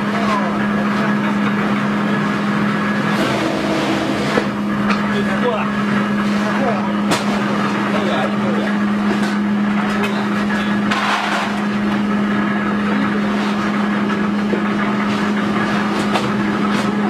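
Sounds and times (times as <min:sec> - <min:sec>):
cutting machine humming: 0:00.0 - 0:17.0.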